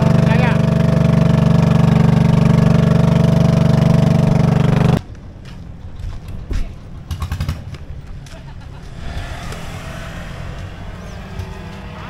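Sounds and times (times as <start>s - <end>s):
motorboat engine running: 0.0s - 5.0s
outdoor noise: 0.0s - 12.0s.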